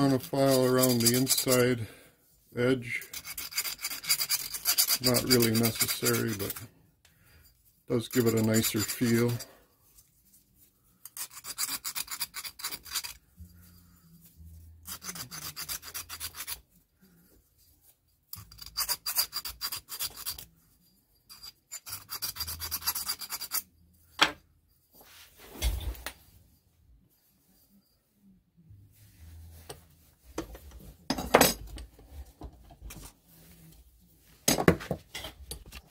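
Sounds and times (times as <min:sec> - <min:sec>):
hand file rasping on steel: 0:00.0 - 0:01.8, 0:02.8 - 0:06.7, 0:07.9 - 0:09.5, 0:11.0 - 0:13.8, 0:14.8 - 0:16.6, 0:18.3 - 0:20.5, 0:21.3 - 0:23.7.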